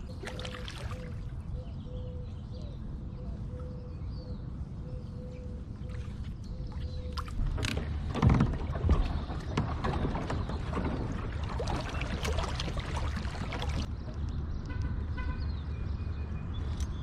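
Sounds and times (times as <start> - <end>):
water lapping along hull: 0.0 - 1.6, 5.2 - 13.9.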